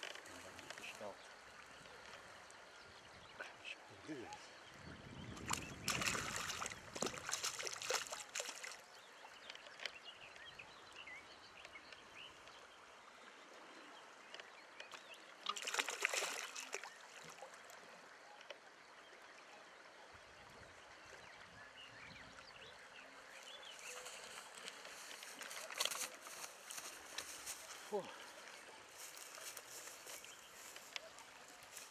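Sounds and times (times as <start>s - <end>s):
fish thrashing and splashing in water: 5.4s - 8.9s, 15.4s - 17.4s.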